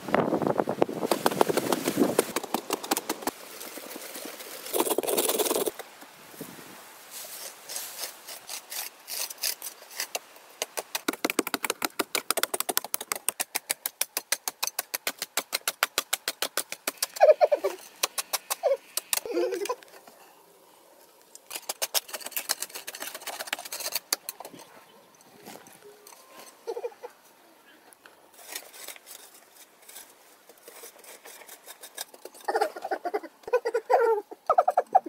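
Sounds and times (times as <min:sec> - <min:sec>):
hoes chipping hard dry earth: 0:07.7 - 0:19.3.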